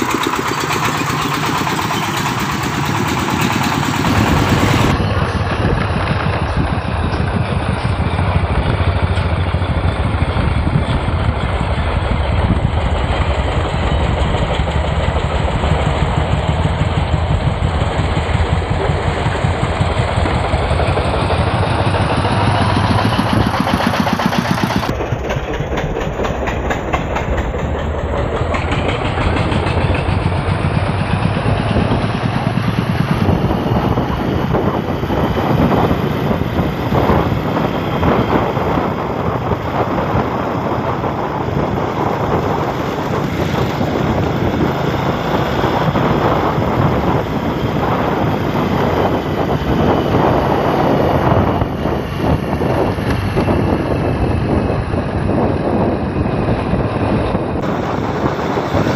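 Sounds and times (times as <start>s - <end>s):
fast even rattle: 0.0s - 33.9s
road noise: 0.0s - 58.9s
vehicle engine running: 0.0s - 58.9s.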